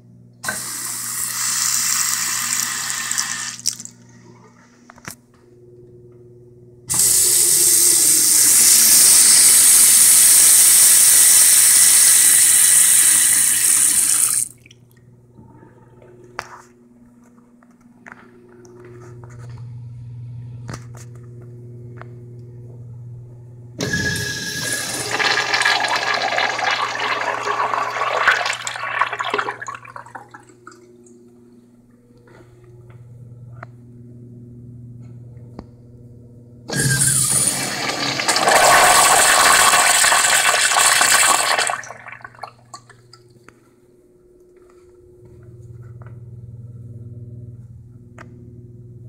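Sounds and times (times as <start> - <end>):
faucet running into basin: 0.4 - 3.9, 6.9 - 14.7, 23.8 - 30.5, 36.7 - 43.1
toilet flushing: 0.4 - 3.9, 6.9 - 14.7, 23.8 - 31.0, 36.7 - 43.2.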